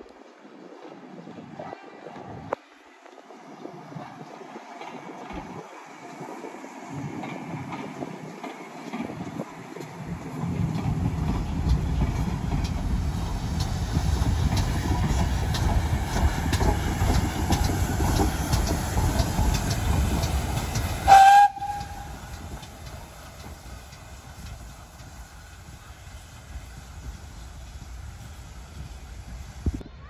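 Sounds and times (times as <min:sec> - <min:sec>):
train wheels rumbling: 0:03.3 - 0:30.0
wheels clicking over rails: 0:04.8 - 0:29.8
high steam whistle: 0:21.0 - 0:22.4.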